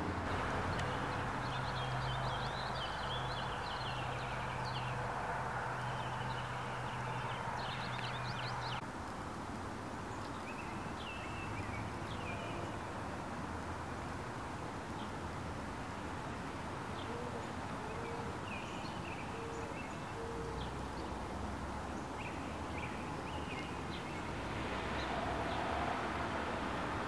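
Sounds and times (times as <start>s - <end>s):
background hiss: 0.0s - 27.0s
small birds chirping: 0.3s - 8.8s, 16.9s - 27.0s.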